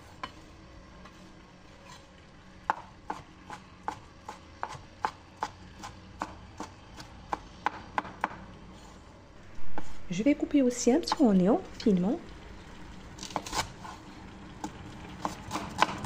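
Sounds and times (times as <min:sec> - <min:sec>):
knife chopping on wooden board: 0:02.7 - 0:08.4, 0:15.2 - 0:16.0.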